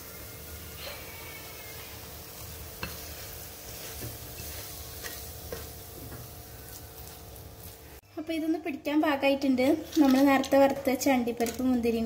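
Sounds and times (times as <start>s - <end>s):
wooden spatula scraping pan: 2.0s - 8.0s.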